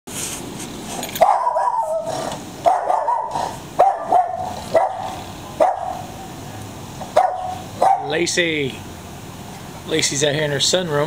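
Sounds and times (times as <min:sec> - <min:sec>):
dog barking: 0:01.2 - 0:06.2, 0:07.1 - 0:08.2.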